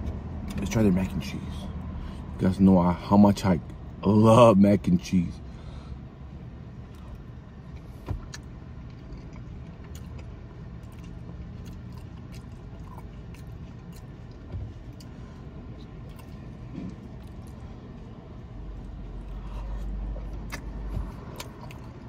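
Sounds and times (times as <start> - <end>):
low car hum: 0.0 - 22.0
man chewing: 6.8 - 22.0.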